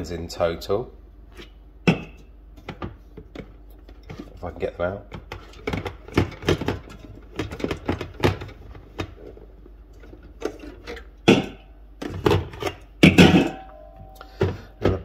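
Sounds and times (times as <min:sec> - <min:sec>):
drink cans knocking together: 0:05.2 - 0:09.2, 0:11.2 - 0:13.6.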